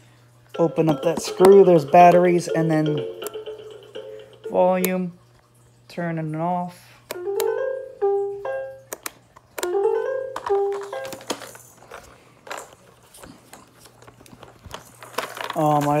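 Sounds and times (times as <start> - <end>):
toy playing synthesized jingle: 0.5 - 4.9, 7.2 - 8.9, 9.7 - 11.4.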